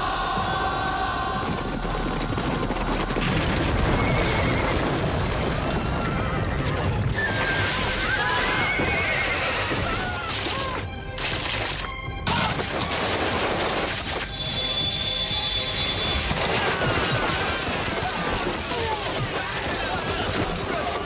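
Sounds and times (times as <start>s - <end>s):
galloping hooves rumble: 0.2s - 7.2s
dramatic film music: 8.8s - 21.0s.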